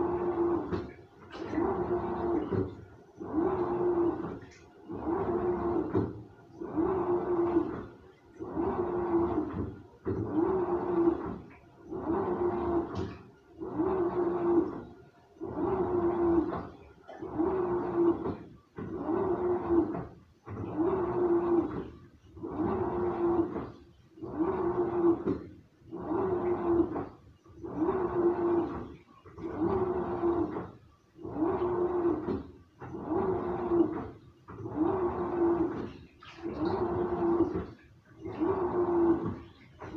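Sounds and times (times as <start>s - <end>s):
washing machine drum turning: 29.4s - 39.9s.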